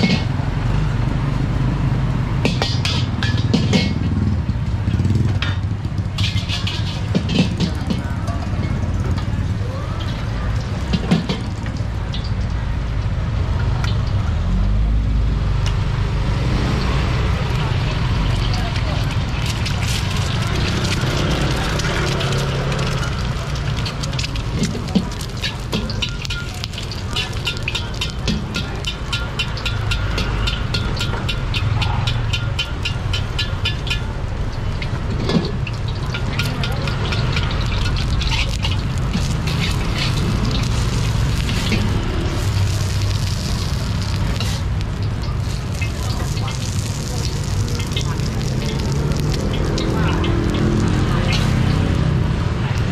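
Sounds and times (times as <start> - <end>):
motor vehicle passing: 0.0 - 12.7, 13.4 - 52.9
traffic roar: 0.0 - 52.9
metal spatula scraping a wok: 6.2 - 8.0, 35.3 - 49.9.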